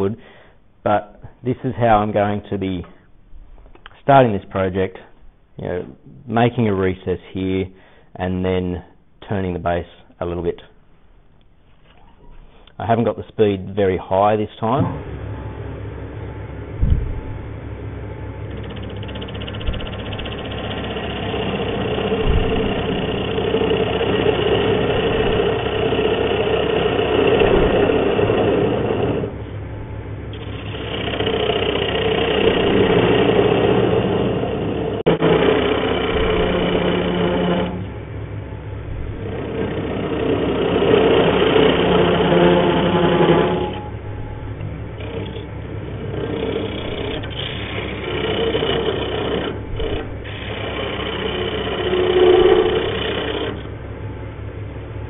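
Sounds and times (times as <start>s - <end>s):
lathe motor hum: 14.9s - 55.0s
turning tool scraping wood: 18.4s - 53.7s.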